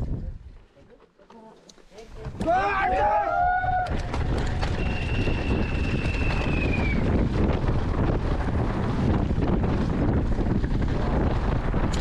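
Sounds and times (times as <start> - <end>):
wind buffeting microphone: 0.0 - 0.6, 2.1 - 12.0
faint high whistling tone: 4.8 - 7.1.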